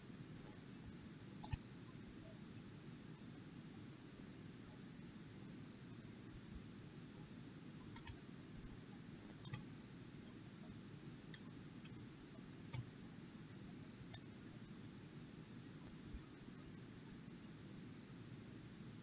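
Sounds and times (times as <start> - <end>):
faint low hiss: 0.0 - 19.0
computer mouse clicking: 1.4 - 1.7, 7.9 - 8.2, 9.3 - 9.7, 11.3 - 12.0, 12.7 - 13.0, 14.1 - 14.3.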